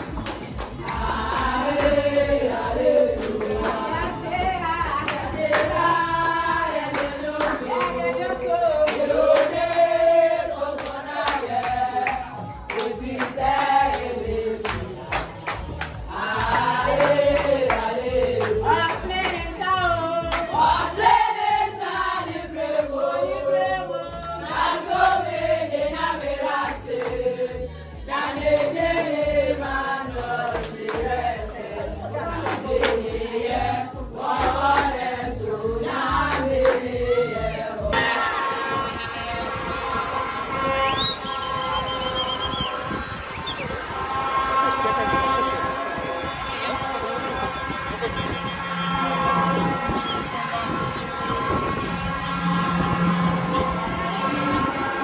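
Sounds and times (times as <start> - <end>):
hands clapping: 0.0 - 9.6, 10.8 - 19.5, 20.2 - 21.0, 26.7 - 27.2, 30.1 - 31.2, 32.3 - 33.1, 34.2 - 35.0, 36.2 - 36.9
women singing in chorus: 0.7 - 15.4, 16.0 - 38.8.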